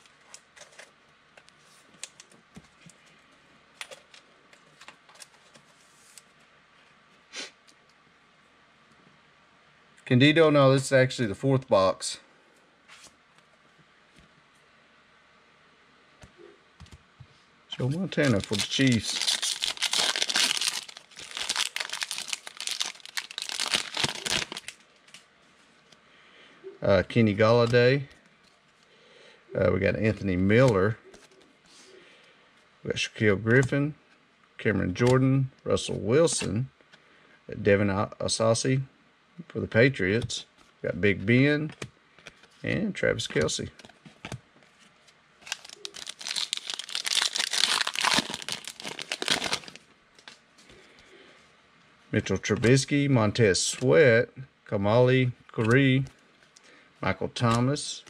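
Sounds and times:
foil card pack crinkling: 0:17.8 - 0:24.8, 0:45.4 - 0:50.4.

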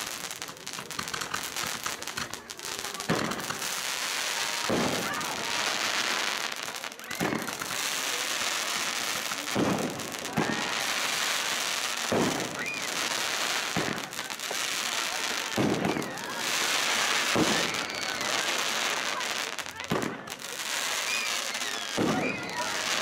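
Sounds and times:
fireworks bangs: 0:00.0 - 0:23.0
fireworks crackling: 0:00.0 - 0:23.0
faint rising whistles: 0:20.9 - 0:22.6.

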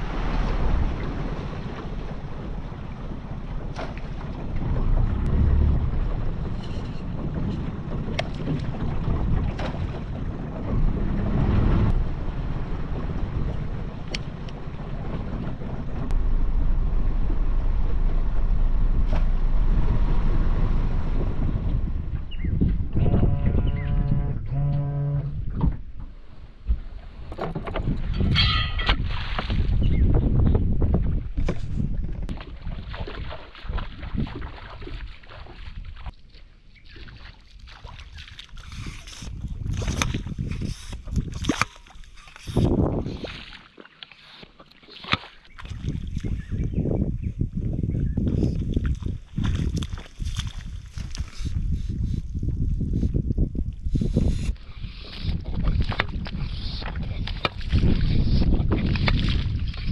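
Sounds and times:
wind buffeting microphone: 0:00.0 - 0:36.2, 0:36.8 - 0:43.6, 0:45.5 - 0:59.9
outboard motor running: 0:04.4 - 0:12.1
splashing in shallow water: 0:27.9 - 0:30.0, 0:32.3 - 0:46.7, 0:48.3 - 0:52.2, 0:53.7 - 0:59.9.

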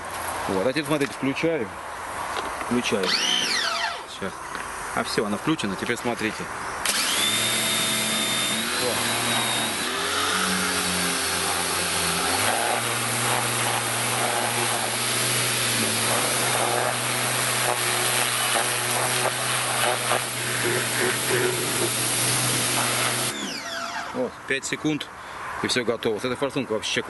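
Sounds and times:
pressure washer motor hum: 0:02.9 - 0:04.1, 0:06.8 - 0:24.2
water jet hissing: 0:08.0 - 0:24.1.

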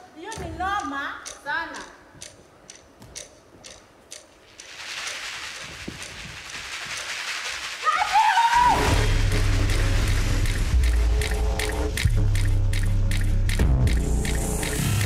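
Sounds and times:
steady hiss: 0:01.8 - 0:15.0
music with deep bass: 0:08.8 - 0:15.0.

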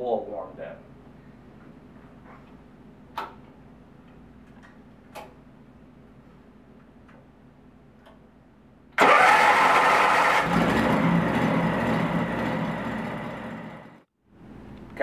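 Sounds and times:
engine cranking and running: 0:09.0 - 0:14.0.

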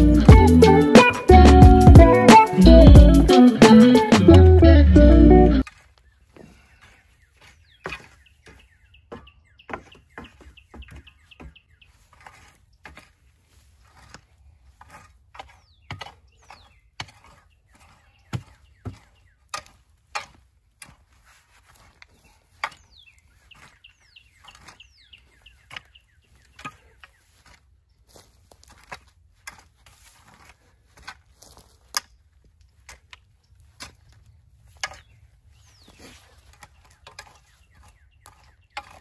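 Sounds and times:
rake scraping through compost: 0:11.7 - 0:32.0, 0:32.7 - 0:39.0.

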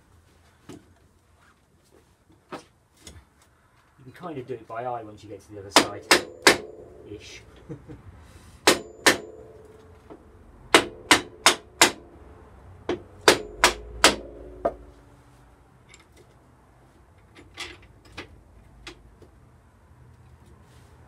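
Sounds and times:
hammer knocking on metal: 0:05.8 - 0:06.9, 0:08.6 - 0:09.4, 0:10.7 - 0:12.1, 0:12.9 - 0:14.9.

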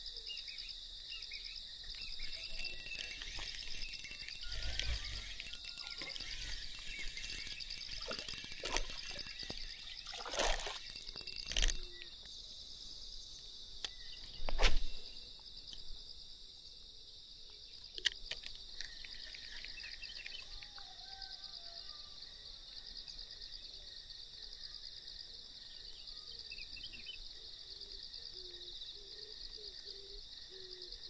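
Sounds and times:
insects chirring: 0:00.0 - 0:31.0
higher finer insect trill: 0:00.6 - 0:21.8.

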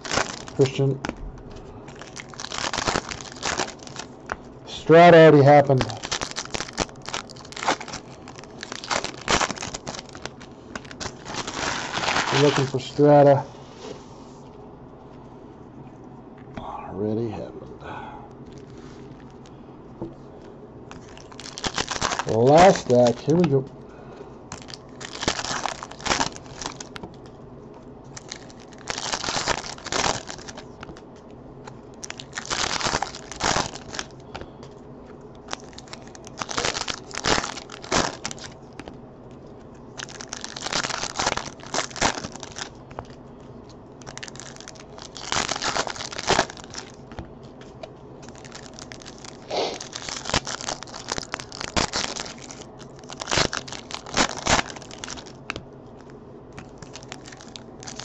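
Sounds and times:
foil wrappers crinkling and tearing: 0:00.0 - 0:13.4, 0:18.4 - 0:19.5, 0:20.9 - 0:23.7, 0:24.5 - 0:27.4, 0:28.0 - 0:58.0.

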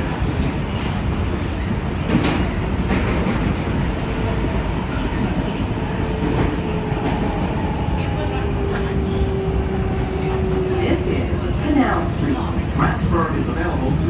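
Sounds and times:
subway train wheel rumble: 0:00.0 - 0:14.0.

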